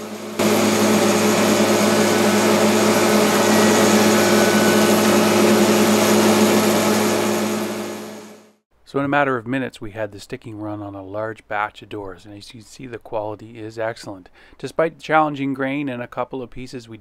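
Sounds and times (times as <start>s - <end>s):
motor hum: 0.0s - 8.5s
wood shaper cutting wood: 0.4s - 8.3s.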